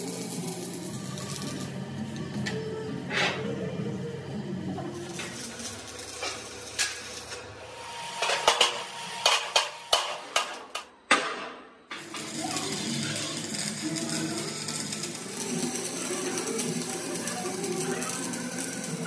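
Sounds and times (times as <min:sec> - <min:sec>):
arc welding crackle: 0:00.0 - 0:02.6, 0:04.8 - 0:10.9, 0:11.9 - 0:19.0
hammer striking steel: 0:08.2 - 0:12.2.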